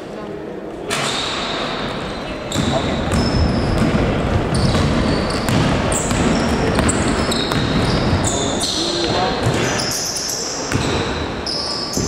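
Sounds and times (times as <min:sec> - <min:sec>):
sneakers squeaking: 0:00.9 - 0:12.0
basketball bouncing: 0:02.5 - 0:09.8, 0:10.7 - 0:11.2.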